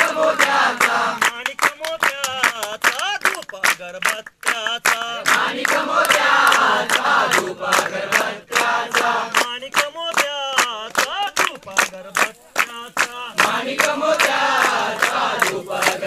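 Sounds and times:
group chanting a song: 0:00.0 - 0:01.5, 0:04.8 - 0:09.6, 0:11.7 - 0:16.0
group clapping to a beat: 0:00.0 - 0:16.0
single voice singing: 0:00.0 - 0:16.0.

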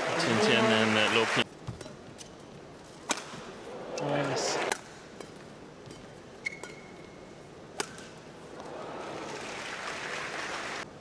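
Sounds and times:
crowd applause: 0:00.0 - 0:01.4, 0:08.6 - 0:10.9
racket hitting shuttlecock: 0:03.0 - 0:03.4, 0:04.2 - 0:06.9, 0:07.7 - 0:08.2
shoe squeak on court: 0:06.4 - 0:07.0.

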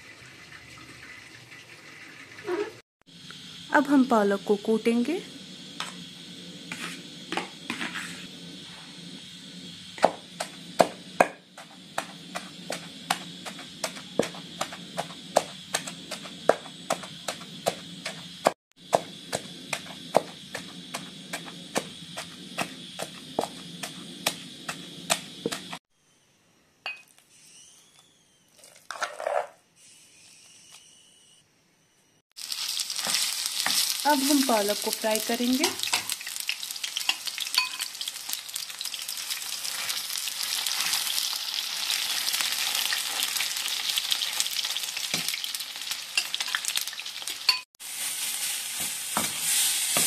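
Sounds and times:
pestle pounding in stone mortar: 0:10.0 - 0:25.8
spoon scraping: 0:28.6 - 0:29.6, 0:37.0 - 0:38.0.

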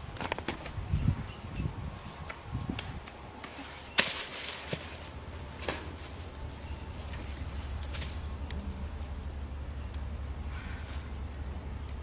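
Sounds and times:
leaves rustling: 0:00.0 - 0:12.0.

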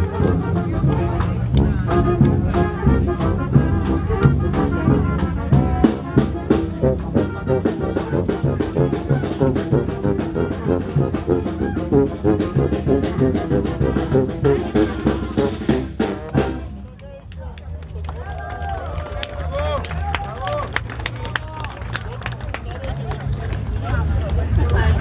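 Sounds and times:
steady drum beat: 0:00.0 - 0:16.8
brass instruments playing tune: 0:00.0 - 0:17.0.

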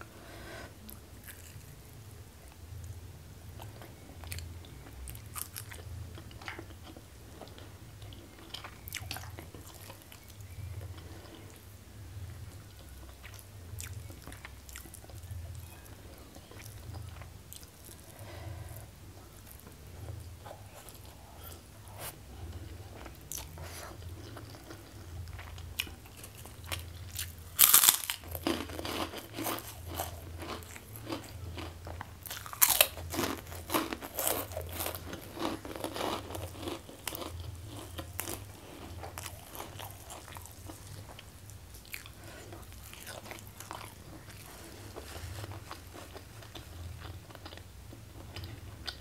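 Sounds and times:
low steady hum: 0:00.0 - 0:49.0
chewing: 0:03.6 - 0:11.6, 0:19.2 - 0:49.0
cracker crunching: 0:23.0 - 0:49.0.

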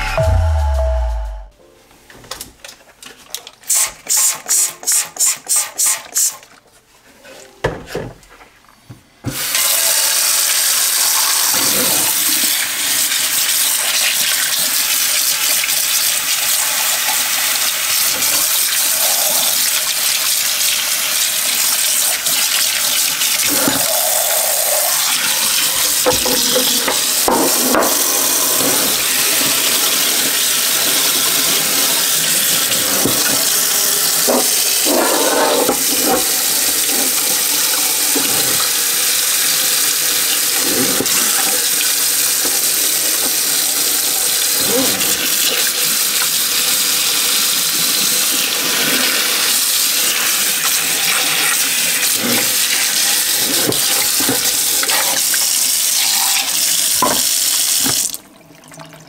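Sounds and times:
tap water splashing in a sink: 0:50.6 - 0:59.0.

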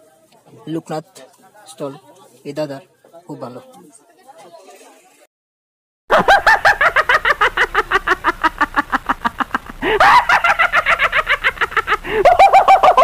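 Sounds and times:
high-pitched cackling laughter: 0:06.1 - 0:13.0.

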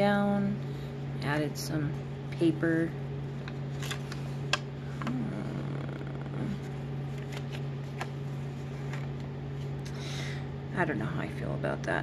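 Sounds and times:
steady low hum: 0:00.0 - 0:12.0
paper rustling: 0:07.1 - 0:09.7.

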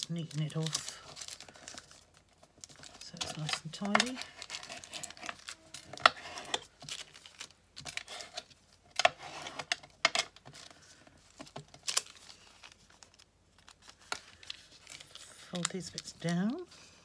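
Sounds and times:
paper being folded and creased: 0:00.0 - 0:16.8
bone folder scraping paper: 0:06.1 - 0:06.7, 0:09.0 - 0:09.7.

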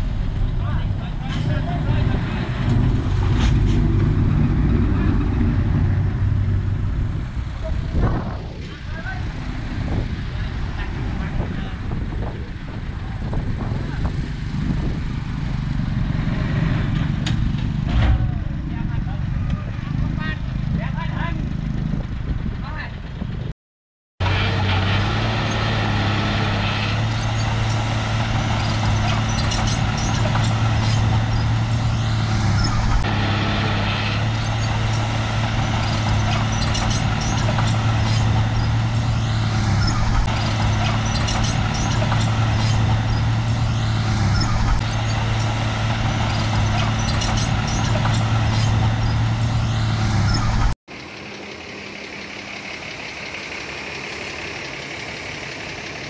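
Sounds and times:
bulldozer diesel engine running: 0:00.0 - 0:23.5, 0:24.2 - 0:56.0.

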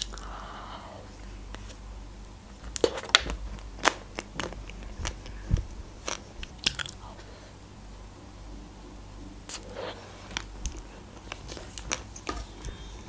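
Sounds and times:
chocolate shell crunching: 0:02.5 - 0:05.4, 0:06.0 - 0:07.1, 0:10.3 - 0:12.9.

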